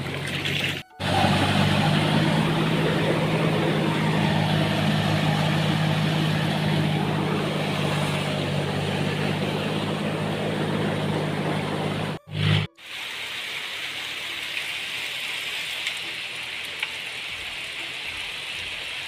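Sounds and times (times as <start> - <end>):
engine running steadily: 0.0 - 12.7.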